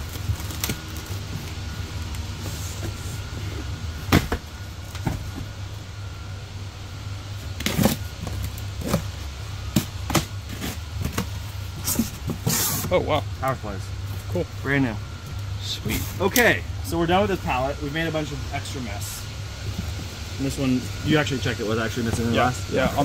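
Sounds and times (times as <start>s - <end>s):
cardboard boxes knocking and rustling: 0.0s - 1.8s, 2.4s - 5.7s, 7.5s - 13.0s, 19.6s - 20.2s, 22.0s - 23.0s
packing tape being slit: 0.0s - 3.1s, 7.5s - 12.9s
low background hum: 0.0s - 23.0s.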